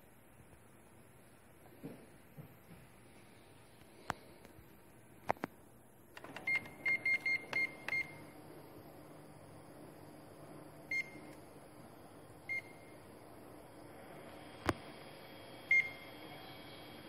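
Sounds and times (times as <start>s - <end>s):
machine humming: 6.2s - 17.0s.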